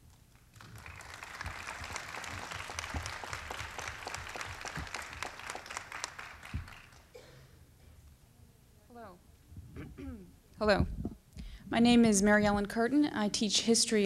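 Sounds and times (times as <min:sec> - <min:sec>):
audience applauding: 0:00.3 - 0:07.2.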